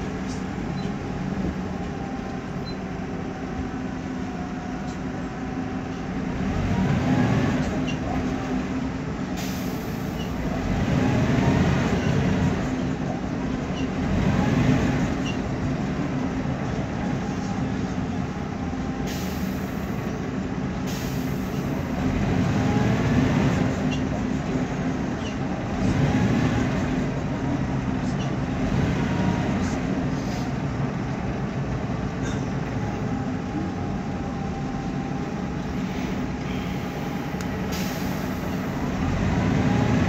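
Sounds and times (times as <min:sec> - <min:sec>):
bus engine droning: 0:00.0 - 0:40.0
air hissing: 0:35.8 - 0:38.7.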